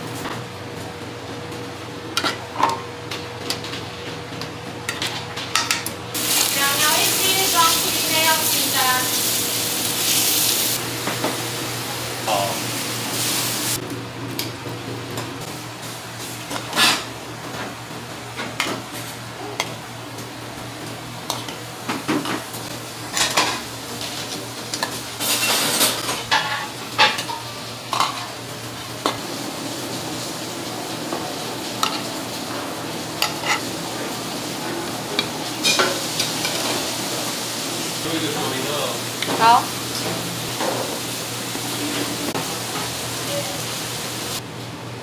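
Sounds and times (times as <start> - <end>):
meat sizzling in a hot pan: 6.2 - 10.8, 11.6 - 13.8
metal utensils scraping pans: 16.6 - 17.1, 24.7 - 28.3, 33.2 - 33.7.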